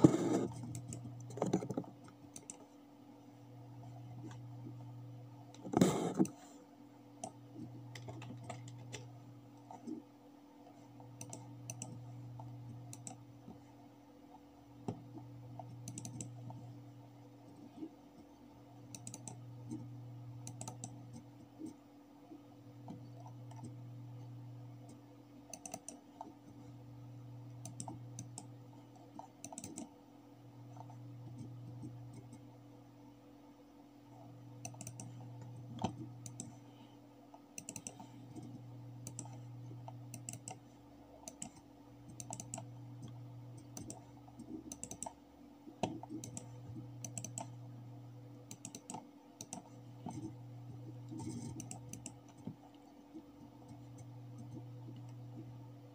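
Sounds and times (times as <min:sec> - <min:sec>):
computer mouse clicking: 0:00.0 - 0:02.8, 0:05.5 - 0:06.5, 0:07.2 - 0:10.1, 0:11.0 - 0:13.6, 0:14.3 - 0:16.8, 0:17.4 - 0:21.8, 0:22.8 - 0:23.8, 0:24.8 - 0:26.6, 0:27.5 - 0:30.0, 0:30.7 - 0:32.5, 0:34.1 - 0:47.6, 0:48.4 - 0:55.6
low hum: 0:00.0 - 0:55.9.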